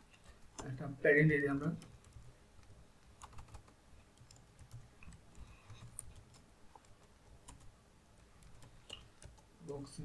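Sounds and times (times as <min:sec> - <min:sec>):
typing on computer keyboard: 0:03.1 - 0:07.7.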